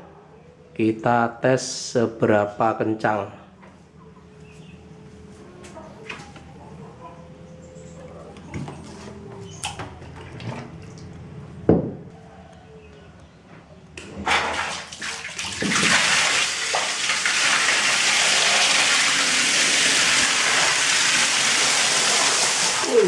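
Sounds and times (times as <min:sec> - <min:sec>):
water jet splashing on concrete: 0:14.3 - 0:23.0.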